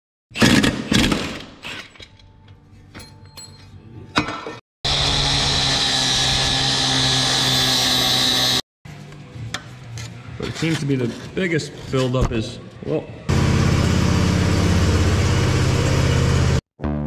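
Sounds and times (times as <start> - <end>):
machine humming and hissing: 13.3 - 16.6.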